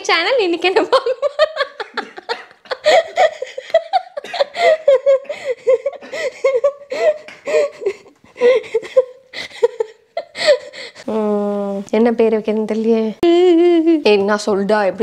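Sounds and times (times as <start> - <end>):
woman laughing: 0.8 - 10.9.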